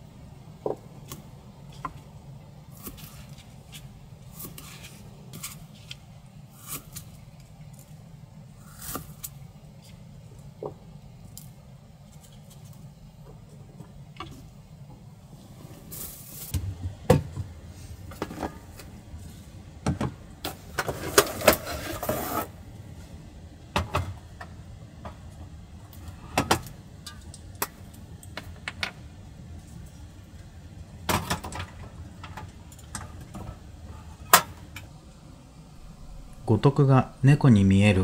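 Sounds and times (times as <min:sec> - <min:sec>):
low background noise: 0:00.0 - 0:38.0
rustling: 0:15.7 - 0:16.5.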